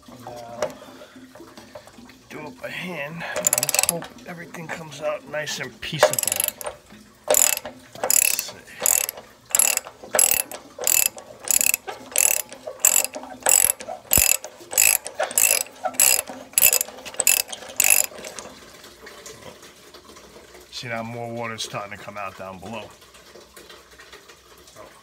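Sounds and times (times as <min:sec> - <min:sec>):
socket ratchet clicking: 0:03.4 - 0:04.0, 0:06.0 - 0:18.4.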